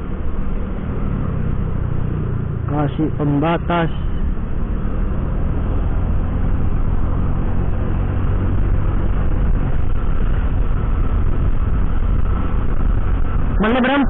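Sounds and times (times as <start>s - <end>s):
wind on microphone: 4.3s - 14.0s.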